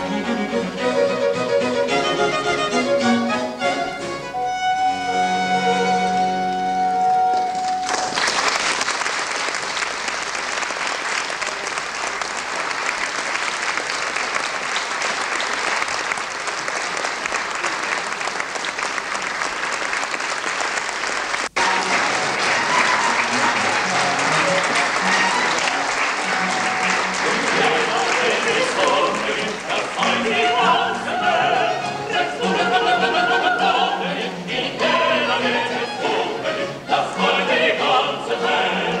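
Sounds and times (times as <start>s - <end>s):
audience clapping: 7.3s - 31.2s.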